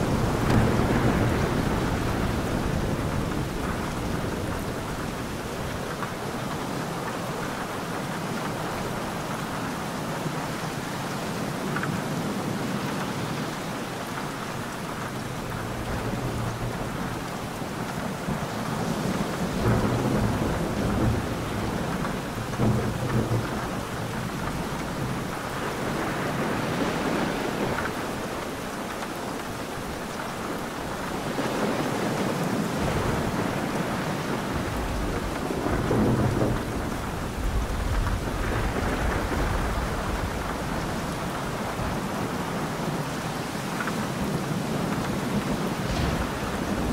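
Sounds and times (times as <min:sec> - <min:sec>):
rolling thunder: 0:00.0 - 0:06.5, 0:18.2 - 0:28.3, 0:31.1 - 0:42.5, 0:44.7 - 0:46.9
heavy rain: 0:00.0 - 0:46.9.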